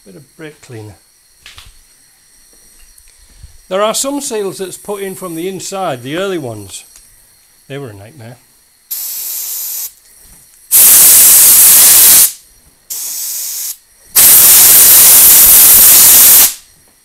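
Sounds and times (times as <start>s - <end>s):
aerosol spray hissing: 8.9s - 10.0s, 10.7s - 16.6s.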